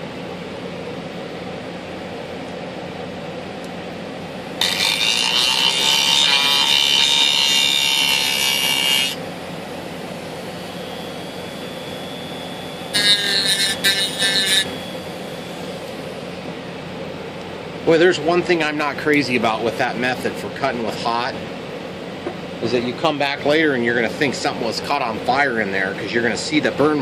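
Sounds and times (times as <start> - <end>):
rotary tool cutting wood: 4.6 - 9.2, 12.9 - 14.8.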